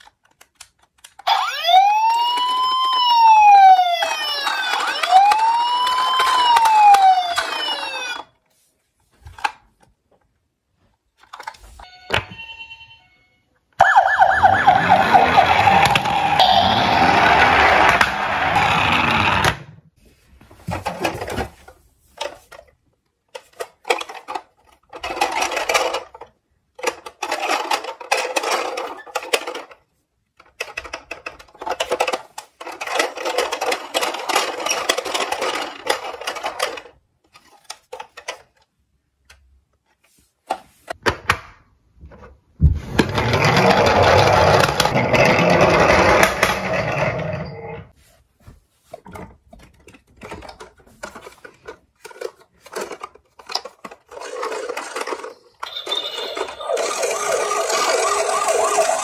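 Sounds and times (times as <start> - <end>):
toy ambulance sound effects: 1.2 - 8.3, 11.8 - 19.4, 54.1 - 59.0
toy police car sound effects: 1.2 - 8.3, 11.8 - 19.4, 54.1 - 59.0
toy cars rattling in box: 23.4 - 29.8, 30.5 - 38.6, 43.0 - 47.4, 49.7 - 59.0.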